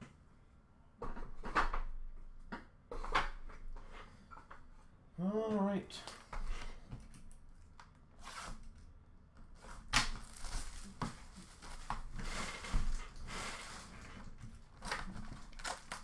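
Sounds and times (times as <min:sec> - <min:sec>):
wrapping rustling and tearing: 0:09.6 - 0:16.0.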